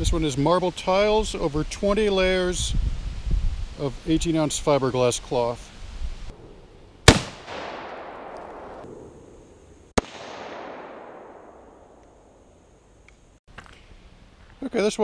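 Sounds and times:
rifle shots with echo: 6.4s - 9.3s, 10.0s - 12.4s.

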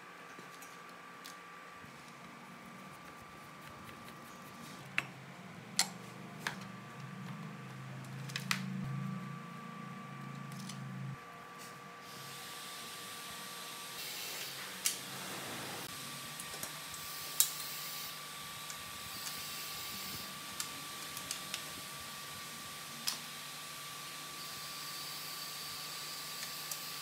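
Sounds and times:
low hum: 1.8s - 11.8s.

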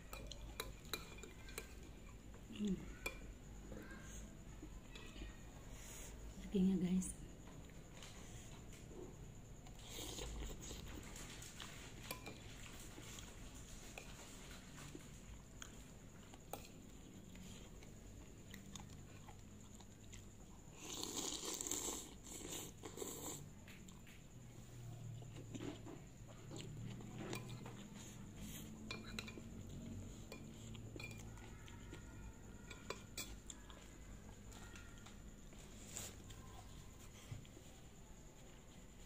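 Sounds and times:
chewing: 7.6s - 39.0s.

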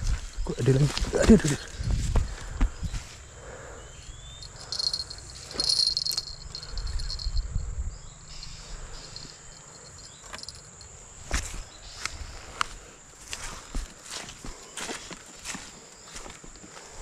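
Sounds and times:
insects droning high-pitched: 0.0s - 17.0s.

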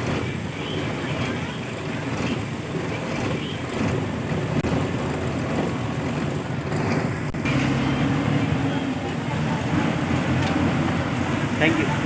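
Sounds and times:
bus engine and road noise: 0.0s - 12.0s.

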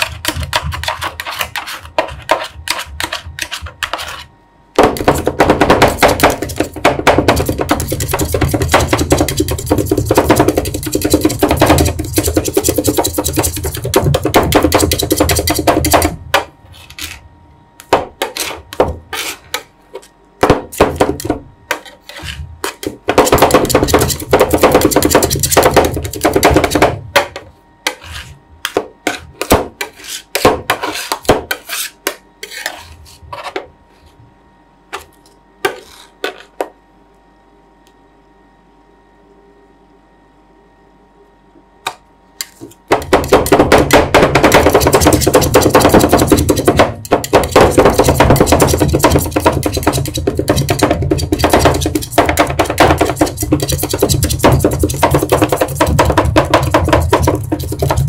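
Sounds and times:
spatula scrapes and taps: 0.0s - 4.3s, 18.2s - 20.1s, 21.2s - 26.7s, 27.8s - 33.7s, 35.0s - 36.5s, 44.6s - 58.0s
metal spatulas chopping on steel: 43.0s - 58.0s.

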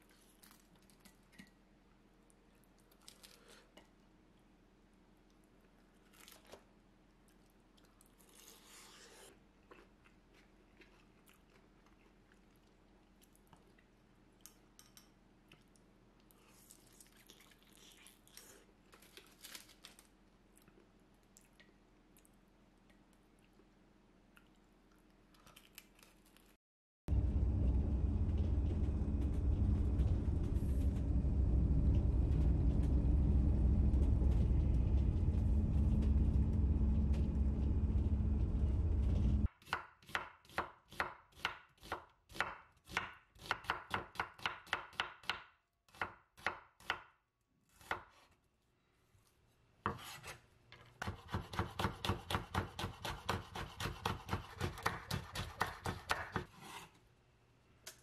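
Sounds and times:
knife chopping on wooden board: 51.0s - 56.5s.

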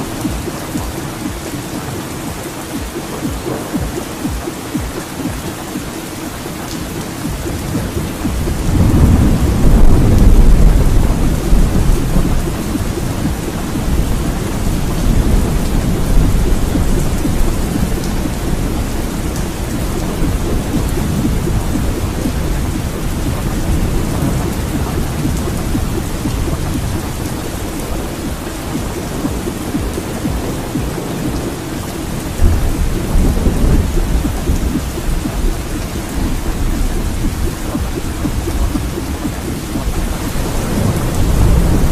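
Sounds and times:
steady rain: 0.0s - 41.9s
thunder rumbles: 0.0s - 41.9s.

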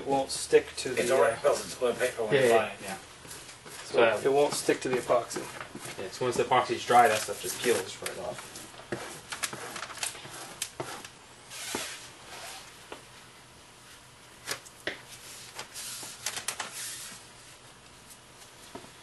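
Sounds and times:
plastic film crinkling: 9.3s - 10.2s.

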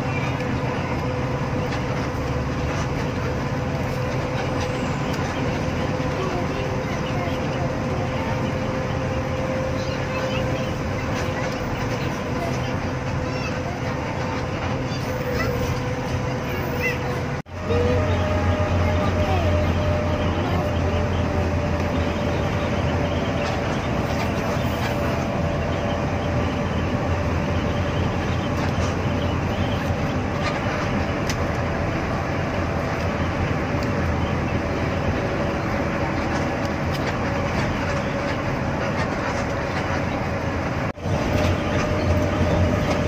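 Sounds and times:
bus engine and tyre rumble: 0.0s - 43.0s.

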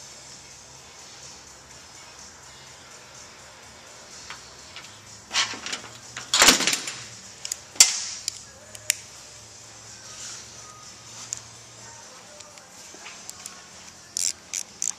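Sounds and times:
metallic clicks: 4.2s - 9.0s, 13.3s - 14.9s.

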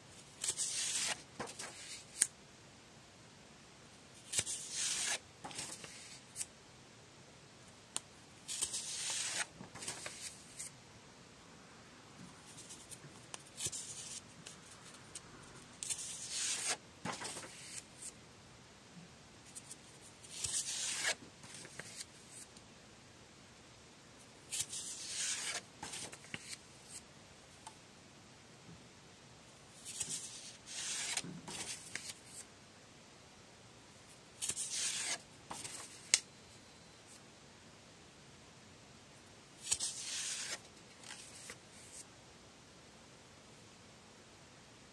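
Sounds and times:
paper pages rustling: 0.4s - 2.3s, 4.3s - 6.5s, 8.5s - 10.7s, 15.8s - 18.1s, 19.5s - 22.5s, 24.5s - 27.0s, 29.8s - 32.4s, 34.4s - 36.2s, 39.6s - 42.0s.

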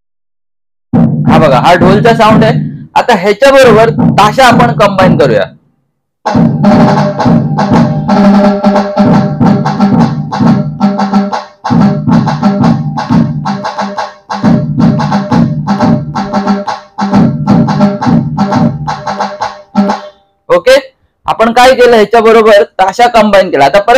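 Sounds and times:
fast crisp drum strokes: 0.9s - 5.4s, 6.3s - 20.2s
deep electronic drum beat: 0.9s - 5.5s, 6.3s - 20.2s.

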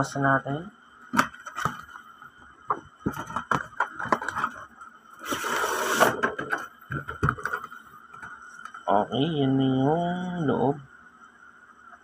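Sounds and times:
tray scraping out of box: 5.2s - 6.6s.

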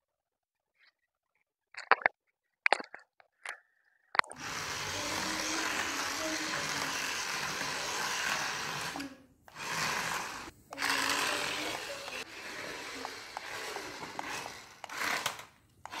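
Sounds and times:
toy car electric motors whirring: 4.3s - 16.0s.

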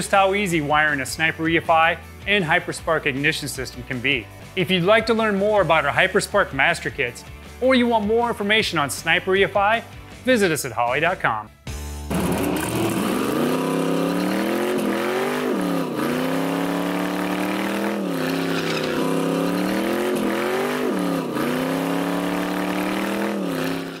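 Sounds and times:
car engine at high revs: 12.1s - 24.0s.

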